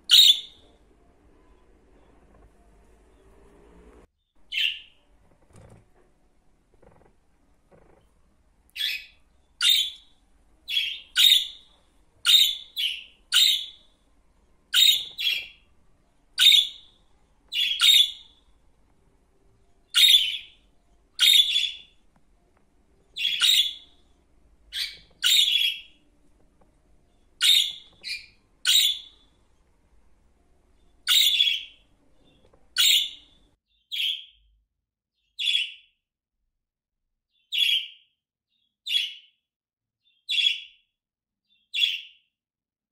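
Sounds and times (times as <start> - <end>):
budgerigars chirping: 0.0 - 0.7, 4.5 - 5.0, 8.8 - 10.1, 10.7 - 13.9, 14.7 - 15.6, 16.4 - 18.4, 19.8 - 22.0, 23.1 - 24.1, 24.7 - 26.0, 27.4 - 29.3, 30.8 - 34.3, 37.5 - 38.0, 40.3 - 40.7, 41.8 - 42.1.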